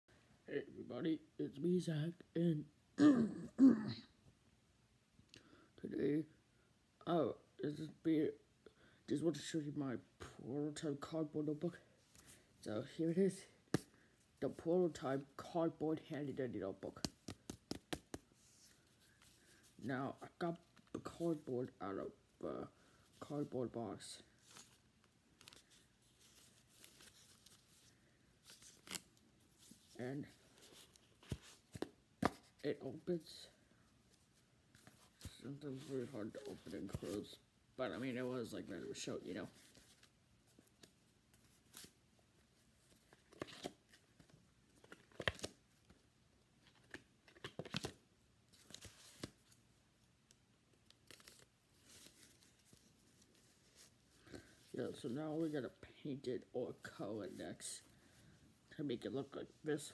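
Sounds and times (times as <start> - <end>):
notebook handling rustles and clicks: 42.9 - 46.0, 46.6 - 49.6.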